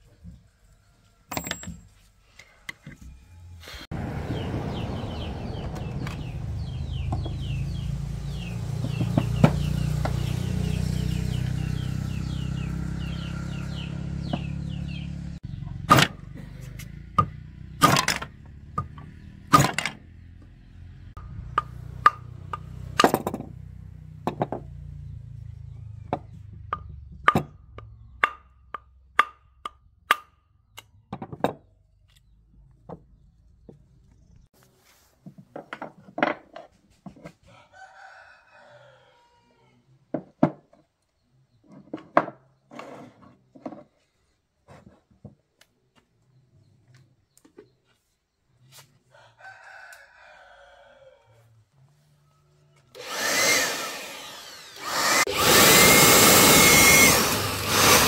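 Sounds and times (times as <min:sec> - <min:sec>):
wooden block knocking metal: 0:01.3 - 0:01.9, 0:26.1 - 0:31.6
motor humming with fast ticking: 0:52.9 - 0:58.0.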